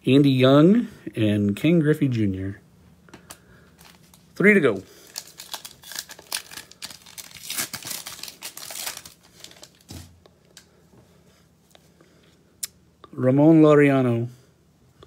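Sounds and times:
plastic wrapper crinkling and tearing: 0:03.7 - 0:10.7.

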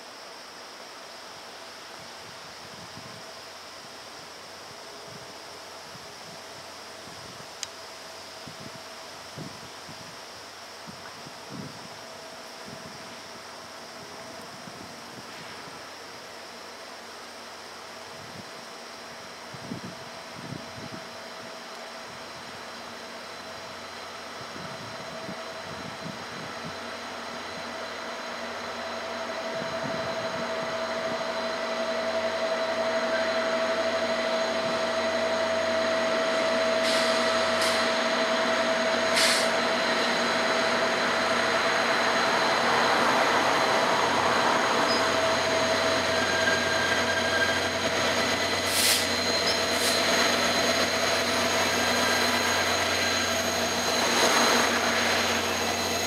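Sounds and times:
diesel locomotives passing: 0:12.0 - 0:56.0.

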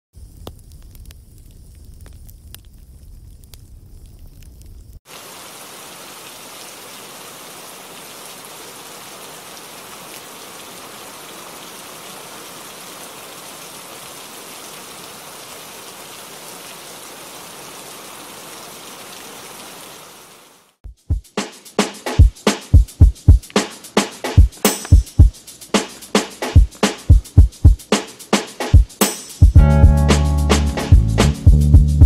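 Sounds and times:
low rumble with crackles: 0:00.2 - 0:05.0
rain-like hiss: 0:00.2 - 0:32.0.

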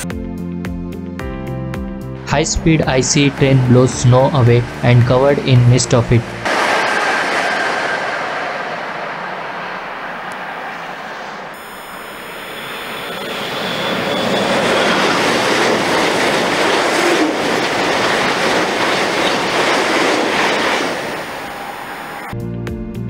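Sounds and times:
high-speed train rushing past: 0:02.2 - 0:22.4
thin high whine: 0:11.3 - 0:15.2, 0:21.2 - 0:22.3.

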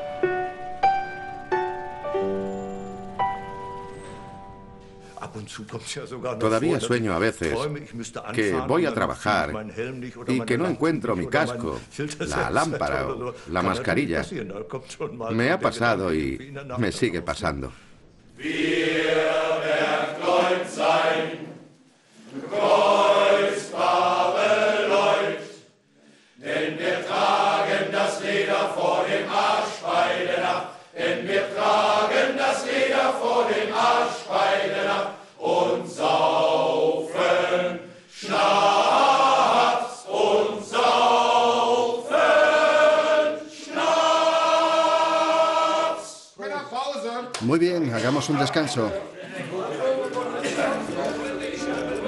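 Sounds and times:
men's choir singing: 0:18.3 - 0:25.8, 0:26.4 - 0:46.4, 0:48.4 - 0:52.0.

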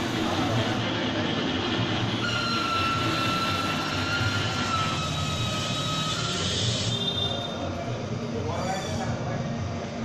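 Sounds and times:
model train mechanical whirr: 0:00.0 - 0:09.3
thin high whine: 0:02.0 - 0:09.4.

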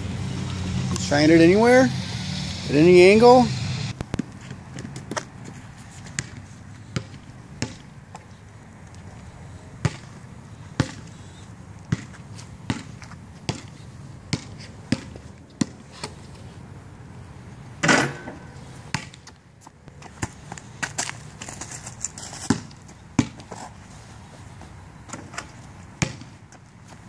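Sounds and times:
basketball bouncing on pavement: 0:03.1 - 0:09.0, 0:09.8 - 0:16.2, 0:17.8 - 0:27.0.

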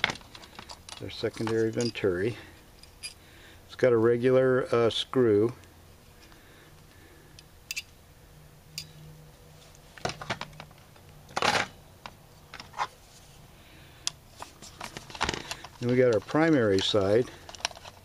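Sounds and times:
small metal parts clicking: 0:07.7 - 0:07.9.

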